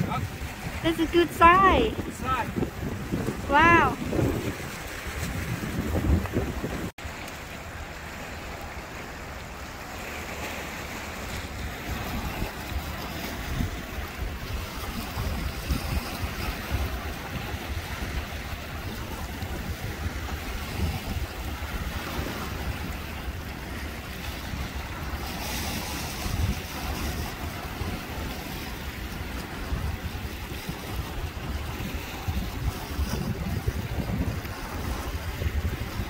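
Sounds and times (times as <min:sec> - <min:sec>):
small waves washing over rocks: 0:00.0 - 0:36.0
wind rumbling on microphone: 0:00.0 - 0:36.0.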